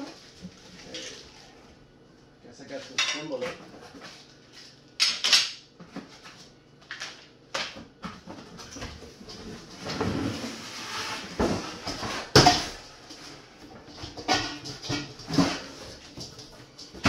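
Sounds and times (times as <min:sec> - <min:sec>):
grill parts knocking and clattering: 0:11.4 - 0:17.0.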